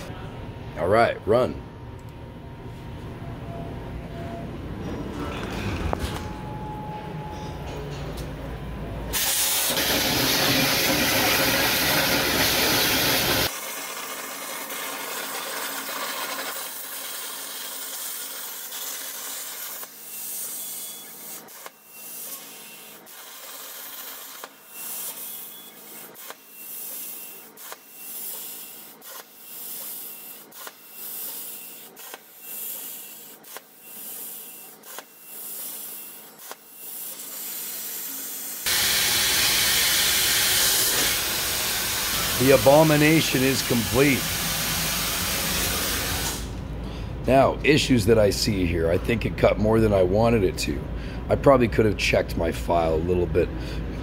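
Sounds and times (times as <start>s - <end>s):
plasma cutter hissing: 9.2s - 46.6s.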